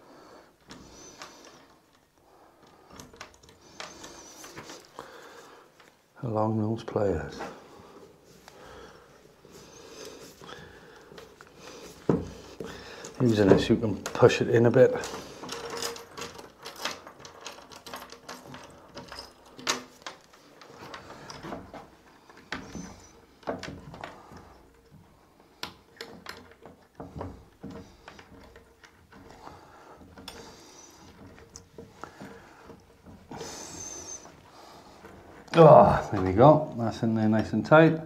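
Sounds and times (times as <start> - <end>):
metal latch clicking and scraping: 13.0 - 25.0.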